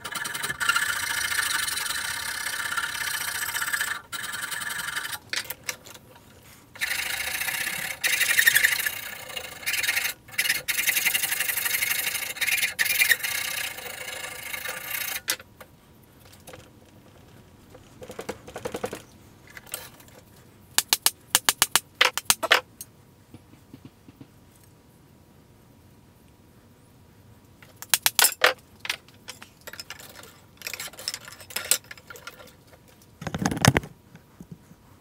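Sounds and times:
sharp clicks and light knocks: 0:15.6 - 0:24.7.

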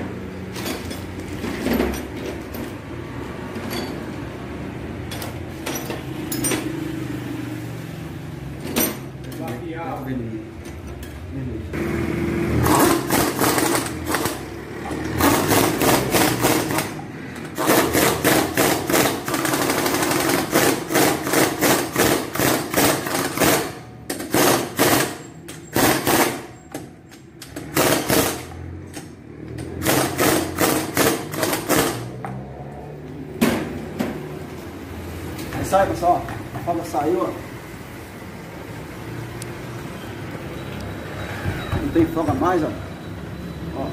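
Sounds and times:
pneumatic impact wrench hammering: 0:12.6 - 0:32.3.

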